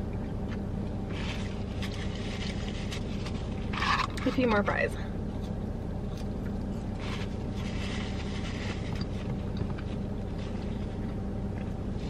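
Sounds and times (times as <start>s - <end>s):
car engine idling: 0.0s - 12.0s
faint paper rustling: 1.1s - 4.5s, 6.2s - 12.0s.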